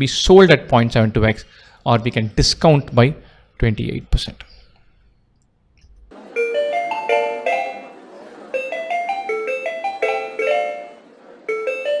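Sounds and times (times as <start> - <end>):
bright chiming jingle music: 6.4 - 8.0, 8.6 - 12.0.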